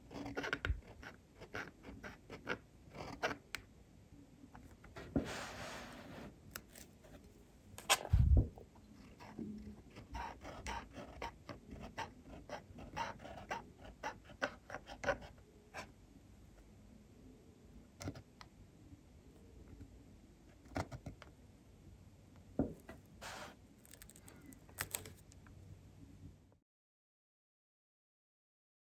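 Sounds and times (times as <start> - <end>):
fountain pen scratching on paper: 0.0 - 3.4, 9.2 - 15.9, 22.9 - 24.1.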